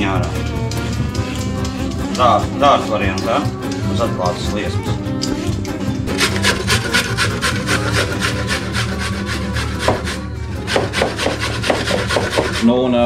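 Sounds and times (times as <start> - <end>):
carrot grated on metal grater: 6.1 - 12.7.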